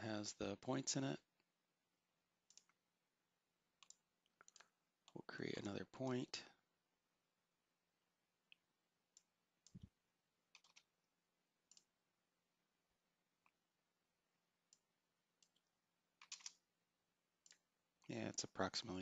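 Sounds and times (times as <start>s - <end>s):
computer mouse clicks: 2.5s - 2.8s, 3.8s - 4.7s, 8.5s - 9.9s, 10.5s - 10.9s, 11.7s - 11.9s, 14.7s - 16.6s, 17.4s - 17.6s
keyboard keystrokes: 10.6s - 10.9s, 16.2s - 16.6s.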